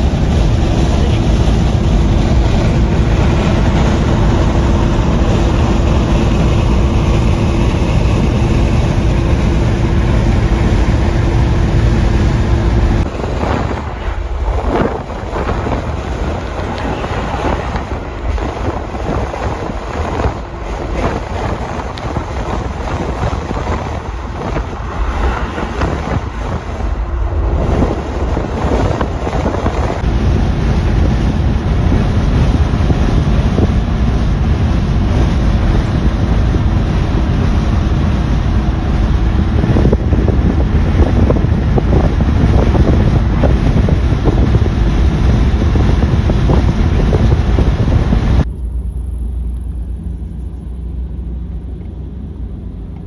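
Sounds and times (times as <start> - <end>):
car engine drone: 0.0 - 53.0
road and wind noise: 0.0 - 53.0
wind buffeting microphone: 0.0 - 53.0.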